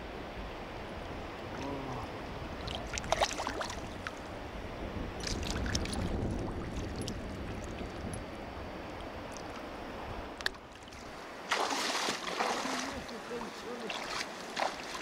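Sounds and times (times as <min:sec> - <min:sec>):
stream rushing: 0:00.0 - 0:15.0
fish splashing in water: 0:02.6 - 0:04.2, 0:11.5 - 0:13.1, 0:13.9 - 0:15.0.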